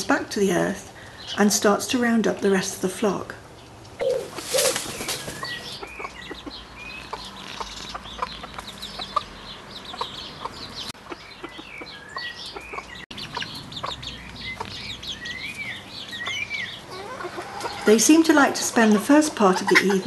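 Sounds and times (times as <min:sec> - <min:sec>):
chickens clucking: 0:03.6 - 0:20.0
rising and falling chicken calls: 0:04.0 - 0:18.0.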